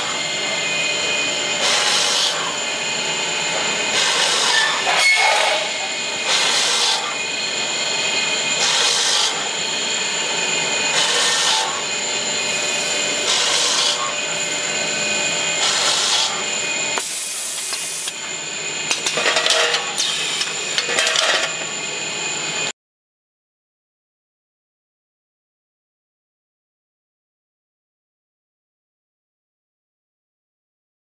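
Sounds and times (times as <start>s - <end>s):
high motor whine: 0.0s - 22.7s
machine drilling bursts: 1.6s - 2.5s, 3.9s - 5.2s, 6.3s - 7.1s, 8.6s - 9.5s, 10.9s - 11.8s, 13.2s - 14.1s, 15.6s - 16.4s.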